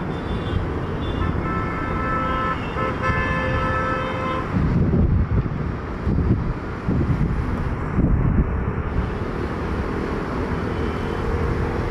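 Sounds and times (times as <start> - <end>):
wind on microphone: 3.0 - 10.0.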